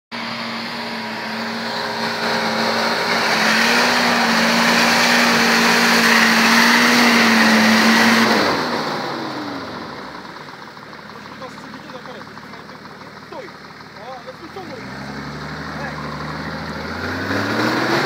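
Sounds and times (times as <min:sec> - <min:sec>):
off-road engine revving: 0:00.1 - 0:18.0
tyres churning mud: 0:00.8 - 0:08.9.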